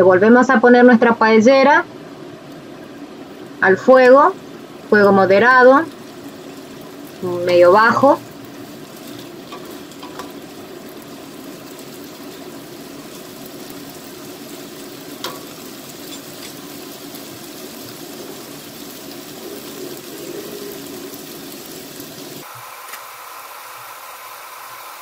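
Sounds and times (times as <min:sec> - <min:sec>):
vegetables sizzling in a pan: 0:01.6 - 0:25.0
wooden spoon stirring: 0:05.9 - 0:11.1.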